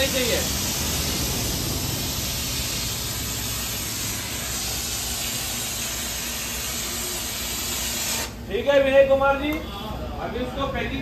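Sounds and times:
spray nozzle hissing: 0:00.0 - 0:08.4.

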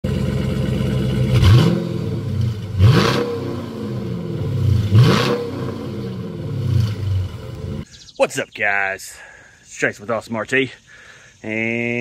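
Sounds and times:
car engine idling and revving: 0:00.0 - 0:07.9.

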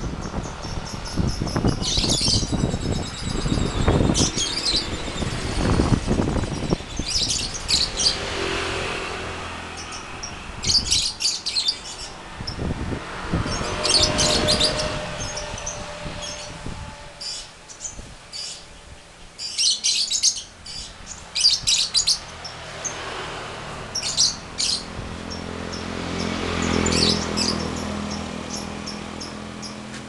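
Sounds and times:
lovebirds chirping: 0:00.0 - 0:08.4, 0:09.6 - 0:12.6, 0:17.2 - 0:23.0, 0:23.9 - 0:30.0.

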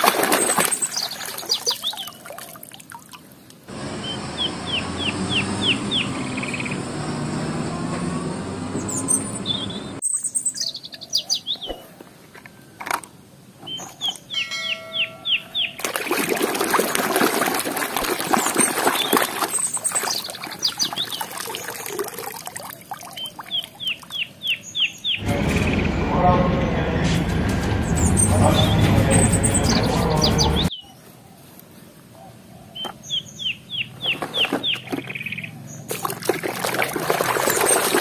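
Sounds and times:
birds chirping: 0:00.2 - 0:02.6, 0:03.4 - 0:12.8, 0:13.6 - 0:15.8, 0:18.3 - 0:36.2
heavy truck engine rumbling: 0:03.7 - 0:10.0, 0:25.2 - 0:30.7
hand splashing water in basin: 0:15.8 - 0:23.6, 0:35.9 - 0:38.0.

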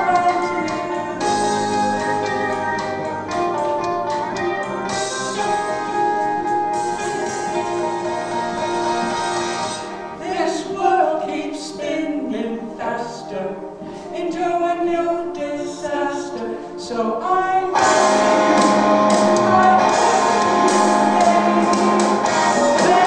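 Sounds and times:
man singing: 0:00.0 - 0:01.8, 0:10.2 - 0:18.6, 0:19.2 - 0:23.0
instrumental backing music: 0:00.0 - 0:23.0
woman singing: 0:19.4 - 0:23.0.

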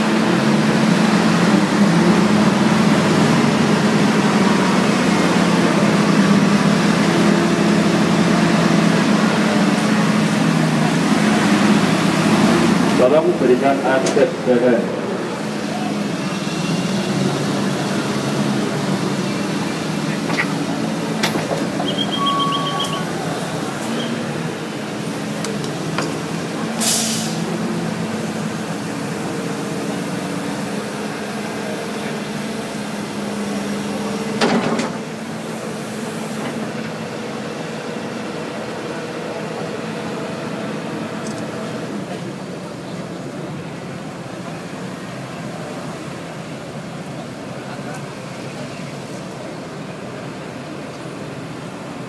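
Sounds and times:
diesel engine running: 0:00.0 - 0:52.0
short high beeping: 0:21.8 - 0:23.1
brief hiss: 0:26.8 - 0:27.4.

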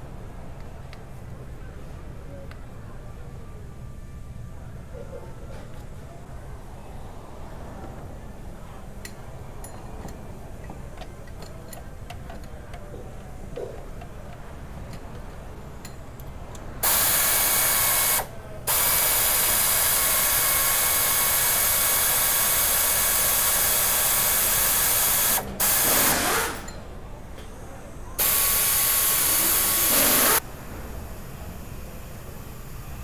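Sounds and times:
compressed air hissing: 0:16.8 - 0:26.7, 0:28.2 - 0:30.4.

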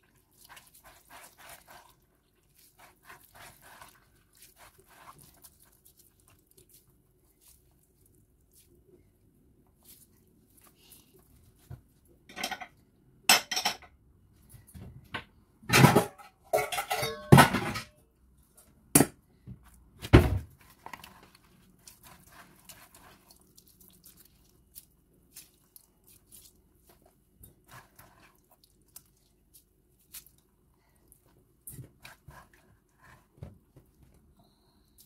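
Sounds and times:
dish knocks and clinks: 0:15.8 - 0:17.9.

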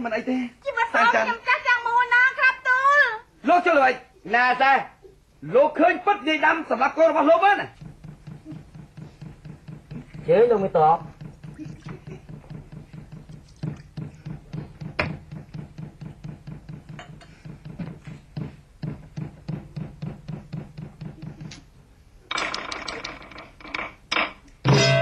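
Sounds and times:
percussion tapping quick rhythm: 0:07.5 - 0:21.6.

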